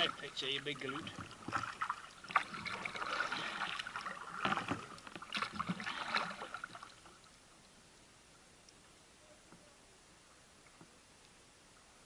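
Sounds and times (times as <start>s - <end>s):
paddle splashing in water: 0.0s - 7.3s.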